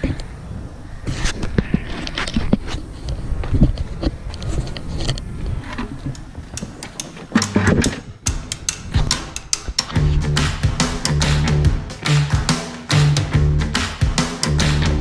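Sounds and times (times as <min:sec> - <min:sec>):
sharp clicks: 0:06.1 - 0:12.5.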